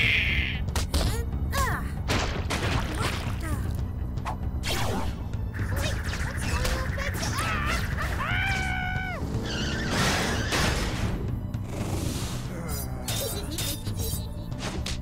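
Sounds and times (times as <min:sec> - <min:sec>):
driving background music: 0:00.0 - 0:15.0.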